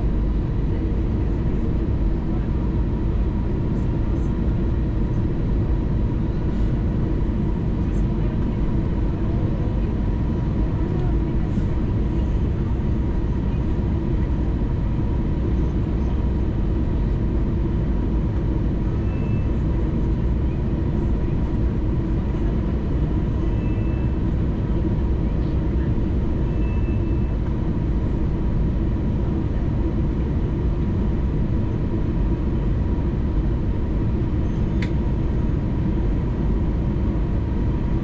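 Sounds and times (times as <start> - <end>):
aircraft engines rumbling: 0.0 - 38.0.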